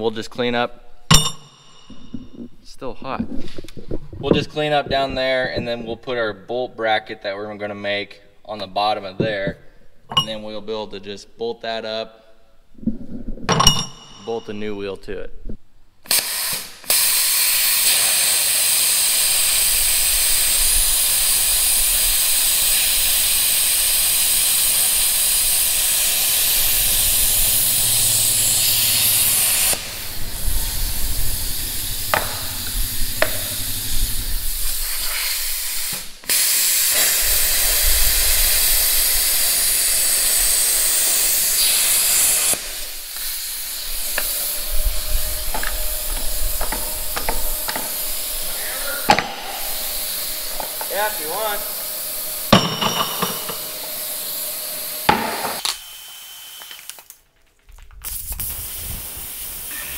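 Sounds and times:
plasma cutter hissing: 0:16.1 - 0:56.6, 0:58.0 - 0:59.9
metal clinks: 0:52.5 - 0:54.0.

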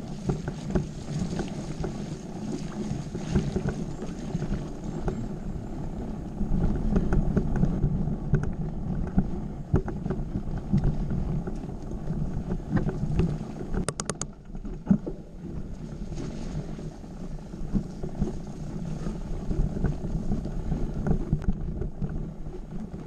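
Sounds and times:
bike knocks and rattles: 0:00.0 - 0:02.2, 0:06.7 - 0:15.3
wind and tyre rumble: 0:00.0 - 0:23.0
sharp clicks: 0:13.8 - 0:14.4.

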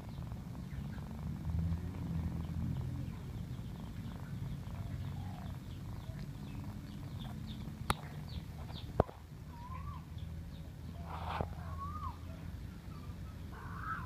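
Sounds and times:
cat purring: 0:00.0 - 0:14.0
faint high chirps: 0:02.0 - 0:14.0
sharp clicks: 0:05.5 - 0:09.2.

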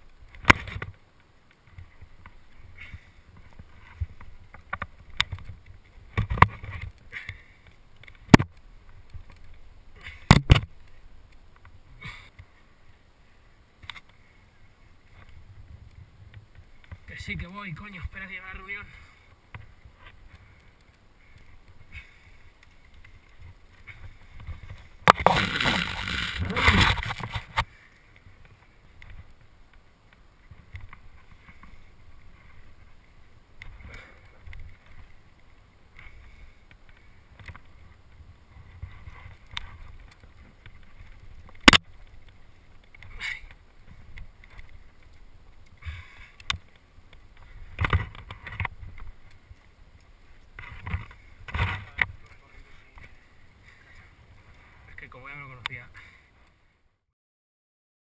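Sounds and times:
microphone handling noise: 0:23.9 - 0:27.8.

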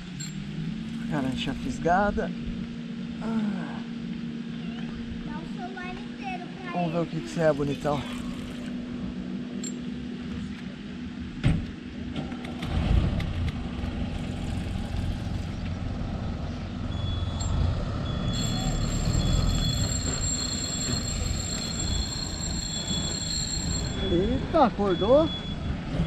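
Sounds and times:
fishing reel drag whining: 0:07.4 - 0:08.8, 0:18.2 - 0:24.2.

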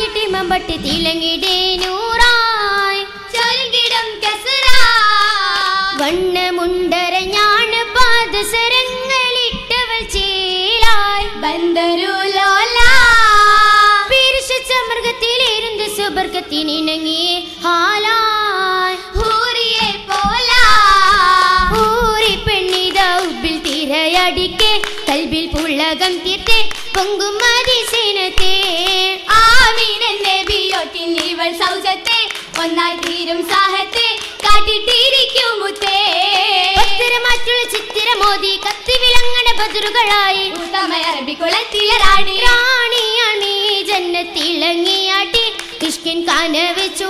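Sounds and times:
girls singing together: 0:00.0 - 0:47.0
sharp hand claps: 0:01.7 - 0:03.6, 0:04.6 - 0:06.2, 0:19.2 - 0:47.0.

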